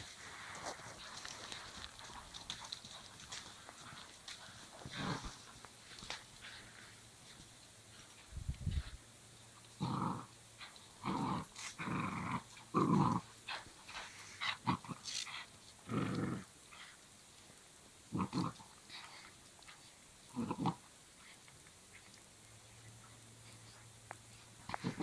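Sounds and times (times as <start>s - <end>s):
dogs growling in play: 1.0s - 6.9s, 9.6s - 17.0s, 18.1s - 21.5s, 24.6s - 25.0s.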